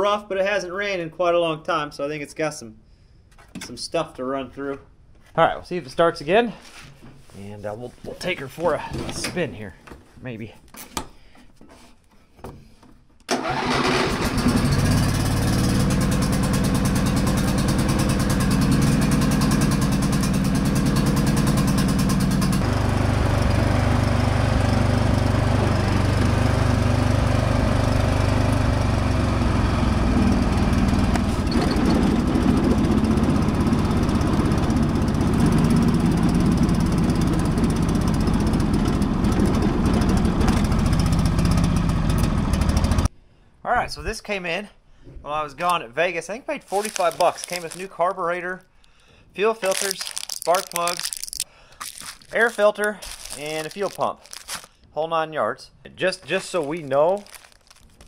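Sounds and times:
riding mower engine running: 13.3 - 43.1, 46.7 - 47.8.

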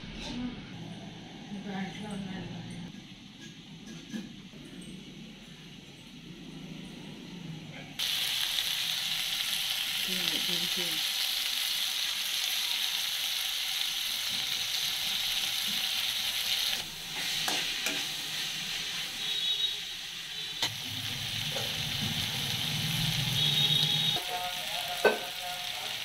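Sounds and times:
food sizzling in hot oil: 8.0 - 26.0.

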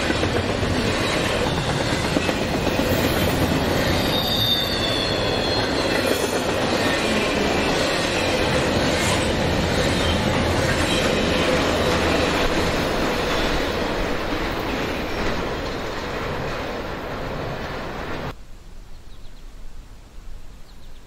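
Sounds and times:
train wheels on rails squealing: 0.0 - 16.8.

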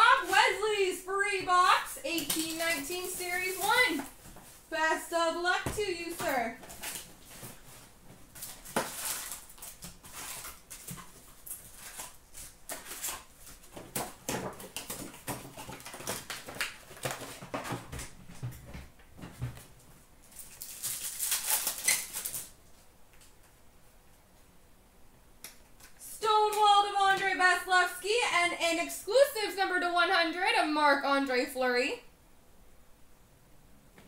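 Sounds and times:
wrappers crinkling: 1.6 - 4.8, 5.8 - 17.9, 20.2 - 22.9
card packs torn open: 8.3 - 17.6, 20.3 - 22.6.

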